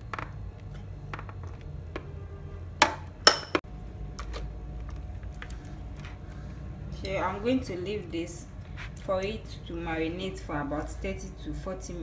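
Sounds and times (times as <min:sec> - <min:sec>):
clinks against glass bowl: 0:03.3 - 0:03.6.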